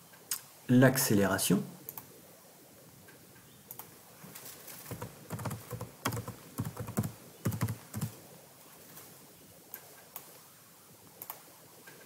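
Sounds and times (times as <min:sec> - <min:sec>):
typing on computer keyboard: 0:04.9 - 0:08.1.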